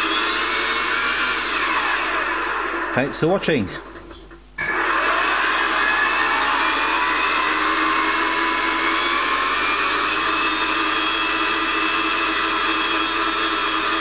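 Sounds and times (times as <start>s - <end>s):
electric fan whirring: 0.0s - 14.0s.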